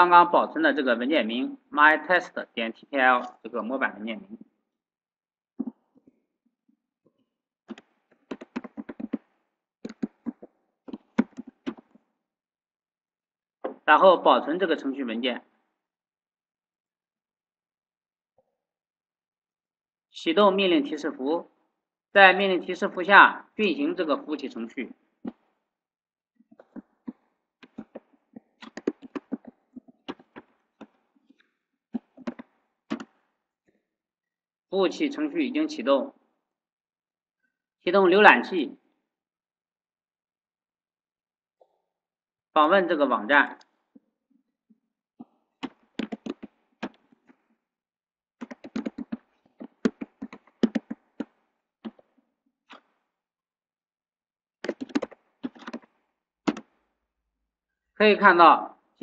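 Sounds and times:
keyboard key clicks: 7.7 - 9.2, 48.4 - 51.0, 54.6 - 55.9, 56.5 - 56.7
typing on computer keyboard: 7.7 - 9.2, 9.8 - 11.8, 27.6 - 28.0, 28.6 - 30.5, 32.0 - 33.1, 45.6 - 47.0, 48.4 - 52.0, 54.6 - 55.9, 56.5 - 56.7.

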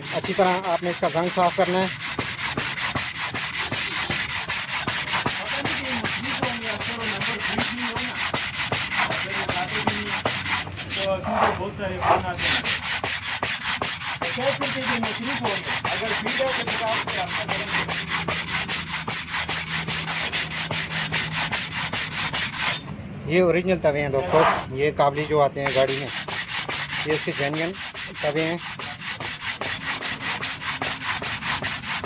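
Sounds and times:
sandpaper scrubbing metal disc: 0.0 - 22.9, 24.3 - 32.0.

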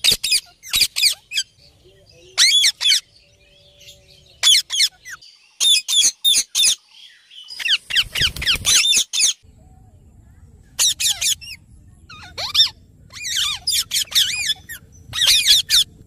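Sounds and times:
parakeets giving high calls: 0.0 - 1.6, 2.2 - 6.8, 7.5 - 9.4, 10.8 - 16.0
low rumble: 9.4 - 16.0.

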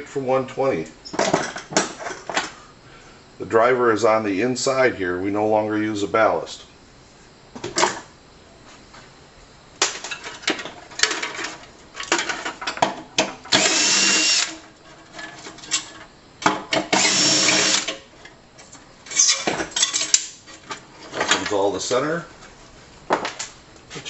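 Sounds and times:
cordless drill whining: 13.5 - 14.6, 16.9 - 17.9
metal parts clattering: 19.1 - 21.6.

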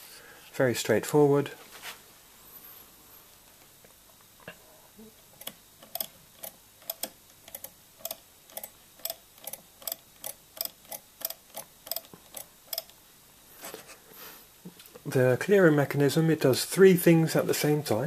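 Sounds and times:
adding machine keys clicking: 5.4 - 13.0.

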